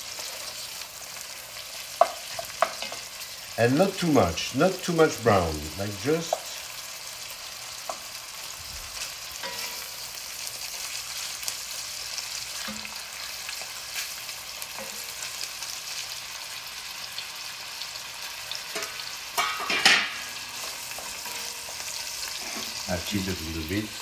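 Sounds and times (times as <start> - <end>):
meat and onions sizzling: 0.0 - 24.0
wooden spoon scraping: 20.6 - 22.8.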